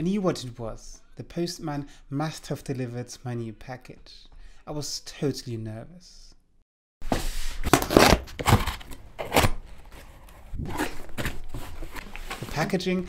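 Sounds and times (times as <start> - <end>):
cardboard rustling: 7.0 - 13.0
cardboard ripping and scraping: 7.1 - 12.8.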